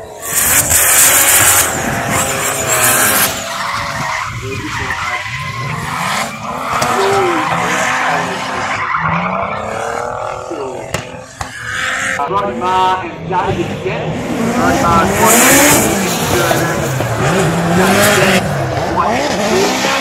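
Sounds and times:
tyre screech: 0:00.0 - 0:12.2
car engines revving hard: 0:00.0 - 0:20.0.

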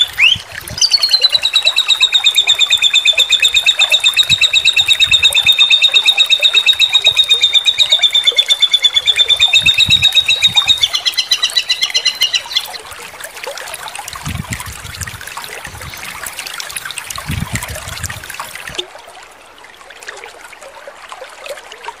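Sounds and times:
songbird ringing trill: 0:00.0 - 0:12.8.

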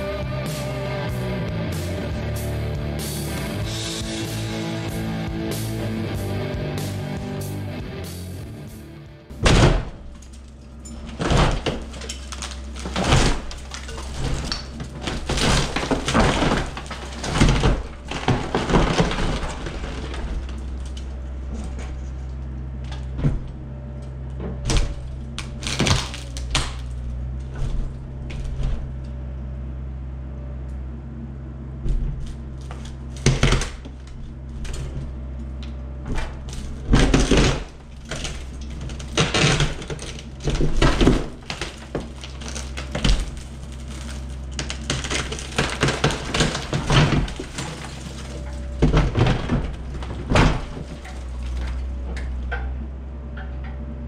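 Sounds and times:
excavator diesel engine running: 0:00.0 - 0:54.0
wood and masonry breaking: 0:09.3 - 0:29.4, 0:31.8 - 0:53.9.

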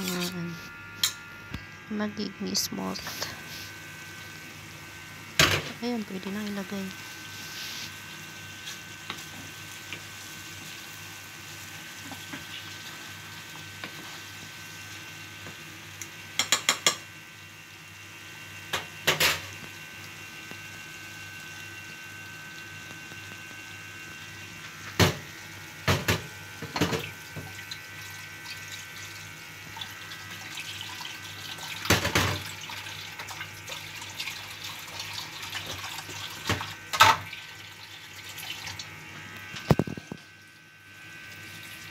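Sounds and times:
curry simmering with hiss: 0:03.0 - 0:25.8.

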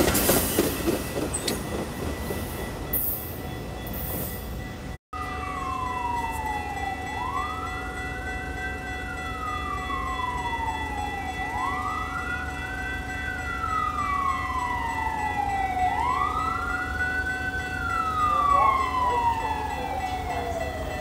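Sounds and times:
siren wailing: 0:05.1 - 0:21.0.

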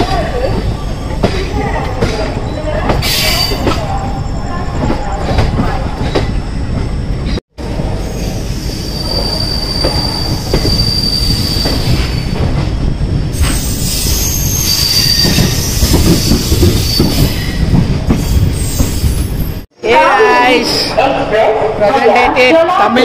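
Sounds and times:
train rumbling on rails: 0:00.0 - 0:19.7
high thin wheel squeal: 0:08.0 - 0:12.4, 0:13.4 - 0:17.6.

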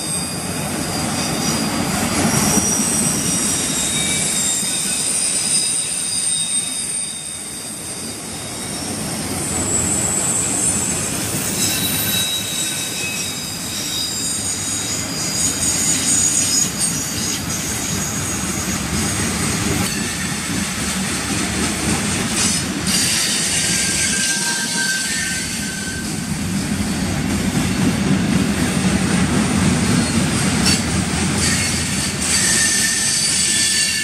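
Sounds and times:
high-pitched wheel squeals: 0:00.0 - 0:19.2, 0:22.4 - 0:26.3, 0:31.4 - 0:34.0
freight train wheels rumbling: 0:00.0 - 0:34.0.

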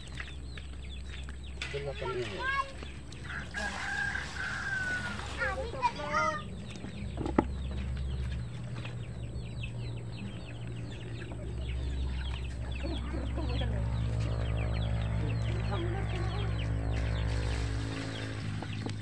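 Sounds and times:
chickens clucking: 0:00.0 - 0:19.0
rooster crowing: 0:03.3 - 0:05.4.

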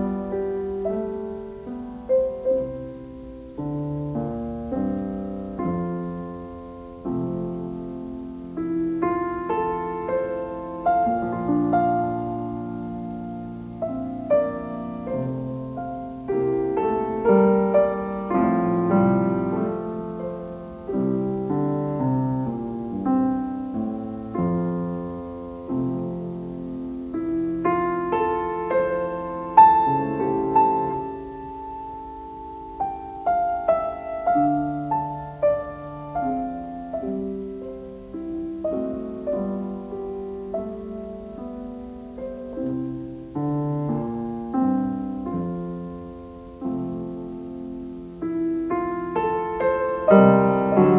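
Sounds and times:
slow piano music: 0:00.0 - 0:50.9.

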